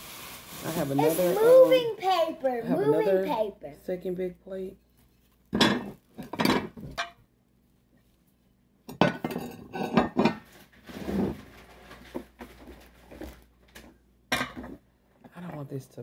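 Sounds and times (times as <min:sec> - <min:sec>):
dinner plates clattering: 0:05.5 - 0:07.2, 0:08.9 - 0:13.4, 0:14.3 - 0:15.7.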